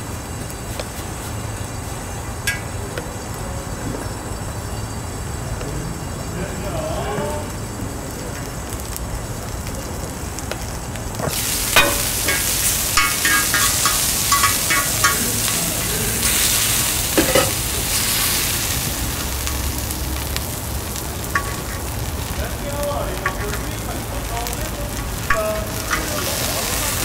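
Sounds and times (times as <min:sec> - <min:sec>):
steak sizzling on griddle: 0:00.0 - 0:27.0
metal tongs clacking: 0:02.5 - 0:02.7, 0:11.3 - 0:18.0, 0:21.3 - 0:21.9, 0:23.2 - 0:23.7, 0:25.3 - 0:27.0.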